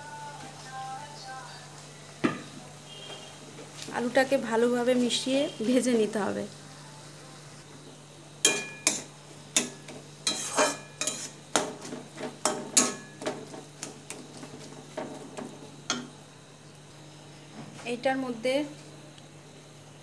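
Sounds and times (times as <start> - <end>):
food frying: 7.8 - 19.8
metal spatula scraping a pan: 8.5 - 15.1.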